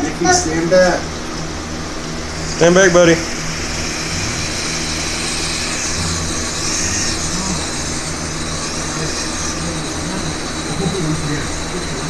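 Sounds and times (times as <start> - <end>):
drone motors buzzing with high whine: 0.0 - 12.0.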